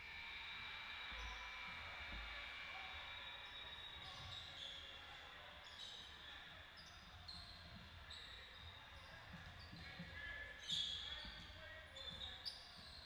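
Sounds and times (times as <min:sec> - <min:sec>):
sneakers squeaking on court: 0:10.6 - 0:13.0.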